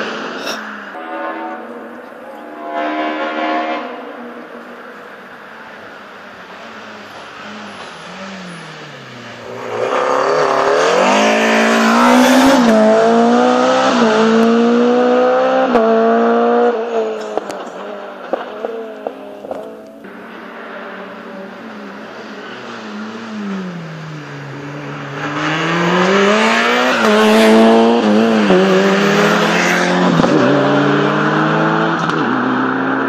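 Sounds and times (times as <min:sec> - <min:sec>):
fainter car engine: 0:00.0 - 0:33.0
rally car accelerating past: 0:07.4 - 0:19.8, 0:20.6 - 0:33.0.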